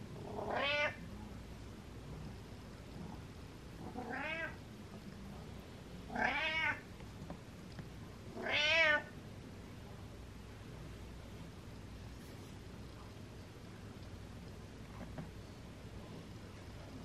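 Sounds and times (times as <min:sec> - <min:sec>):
cat meowing: 0:00.3 - 0:01.0, 0:03.9 - 0:04.6, 0:06.1 - 0:06.8, 0:08.4 - 0:09.1.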